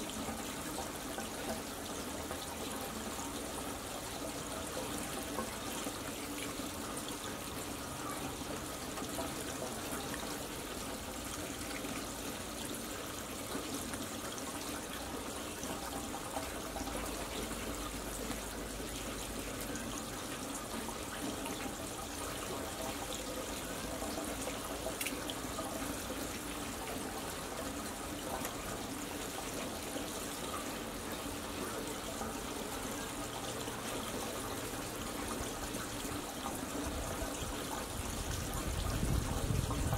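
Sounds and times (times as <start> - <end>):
running water trickling: 0.0 - 39.9.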